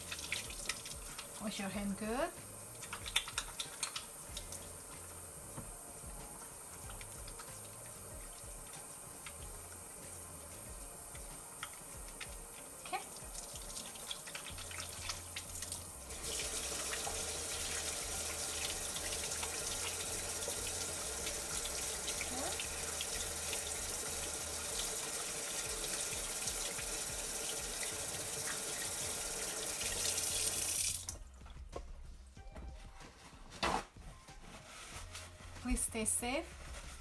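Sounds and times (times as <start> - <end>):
faucet water running: 0.0 - 31.4
wet hands rubbing: 2.4 - 5.1.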